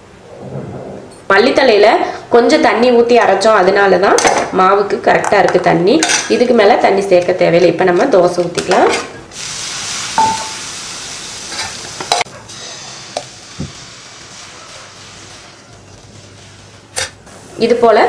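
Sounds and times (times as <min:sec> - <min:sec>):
batter sizzling on hot pan: 0:09.3 - 0:17.6.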